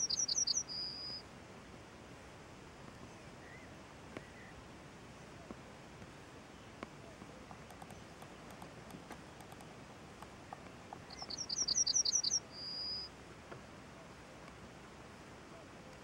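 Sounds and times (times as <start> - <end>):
songbird singing: 0.0 - 1.3, 2.9 - 4.6, 6.4 - 14.6.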